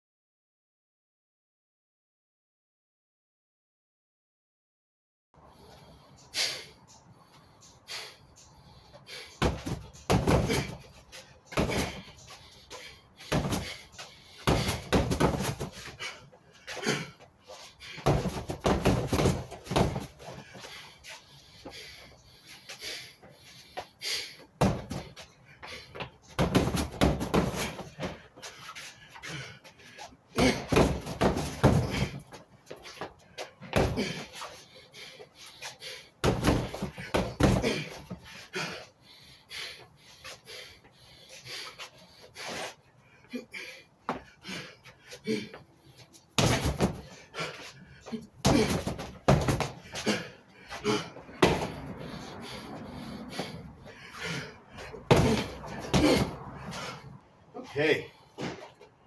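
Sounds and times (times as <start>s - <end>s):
gloved punches on punching bag: 9.4s - 10.8s, 11.6s - 12.0s, 13.3s - 13.8s, 14.4s - 15.8s, 18.0s - 20.1s, 24.6s - 25.1s, 26.4s - 28.2s, 30.4s - 32.2s, 33.7s - 34.2s, 36.2s - 37.9s, 46.4s - 47.1s, 48.4s - 49.9s, 51.4s - 51.8s, 55.1s - 56.4s.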